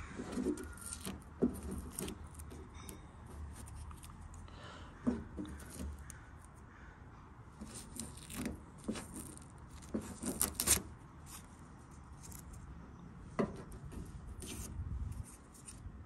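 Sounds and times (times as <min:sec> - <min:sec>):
plastic tool scraping adhesive: 0:00.2 - 0:02.7, 0:05.4 - 0:06.1, 0:07.6 - 0:10.9.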